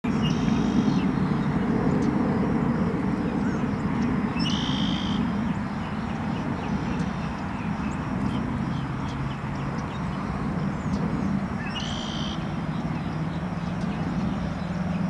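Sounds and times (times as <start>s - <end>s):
low engine rumble: 0.1s - 15.0s
short high bird calls: 4.4s - 5.2s.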